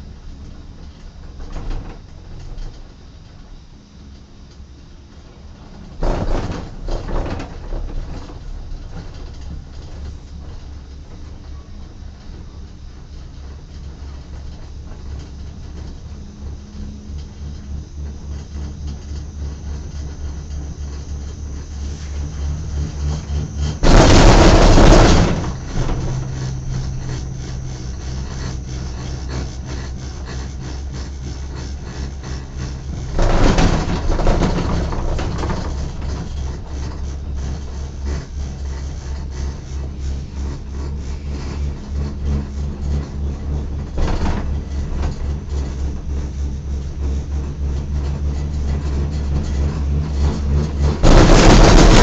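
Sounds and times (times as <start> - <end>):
cable car cabin rumbling: 4.6 - 52.0
loud rushing rumble: 21.6 - 30.4, 50.8 - 52.0.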